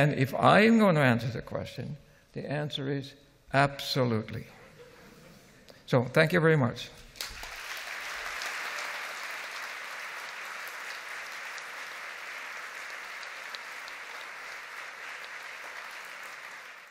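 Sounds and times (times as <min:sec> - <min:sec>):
audience applauding: 0:07.2 - 0:16.9.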